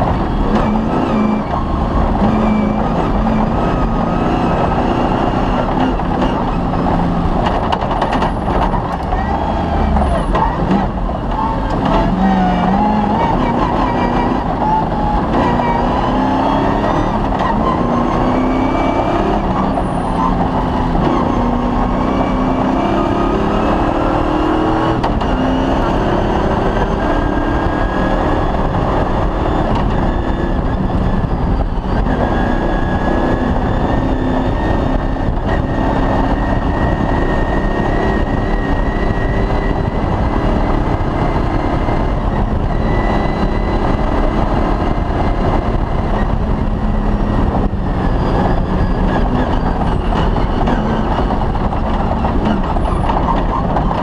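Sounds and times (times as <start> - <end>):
drivetrain and road noise: 0.0 - 54.0
rally car engine revving: 0.0 - 54.0.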